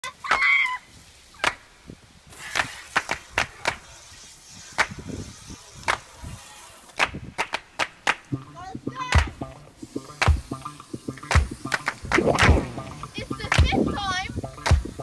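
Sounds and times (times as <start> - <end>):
water hissing from hose: 0.0 - 7.3, 8.3 - 15.0
scrub brushes tapping and clacking: 7.0 - 15.0.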